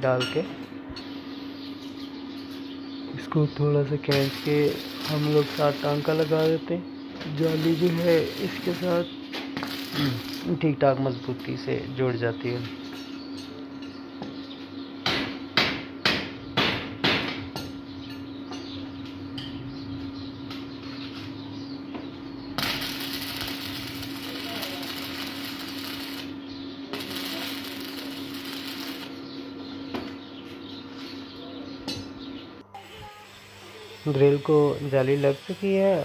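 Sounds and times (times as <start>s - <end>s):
steady hum: 0.0s - 36.0s
crackling arc welding hiss: 4.1s - 11.5s, 22.5s - 29.2s, 32.8s - 36.0s
hammer knocking on iron: 15.0s - 17.5s.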